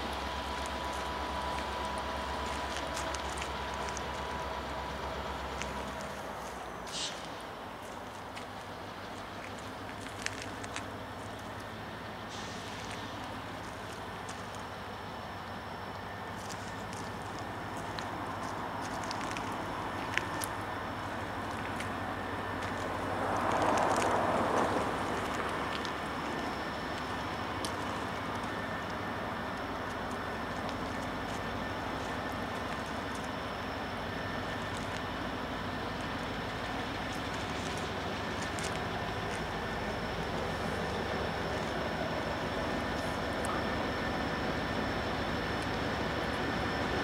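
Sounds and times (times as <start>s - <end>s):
outdoor hiss: 0.0s - 10.0s, 10.7s - 18.4s
diesel locomotive rumble: 0.0s - 47.0s.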